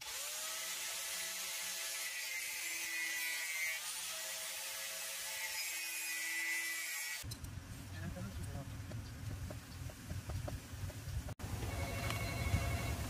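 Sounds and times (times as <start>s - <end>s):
angle grinder grinding metal: 0.0s - 7.3s.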